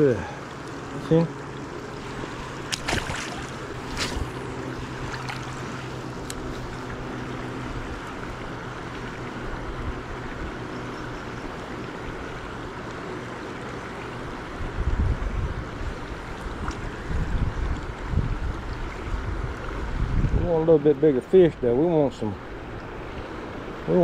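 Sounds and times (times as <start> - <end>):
shallow river water rushing: 0.0 - 24.0
fish splashing into water: 2.4 - 6.4.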